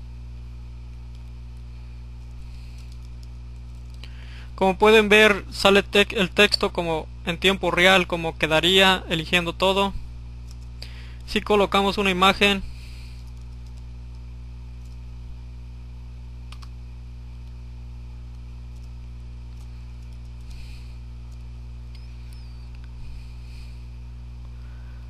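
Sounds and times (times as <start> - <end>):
low electrical hum: 0.0 - 25.0
faint clicks at computer: 0.9 - 4.1, 13.2 - 15.0, 16.5 - 16.8.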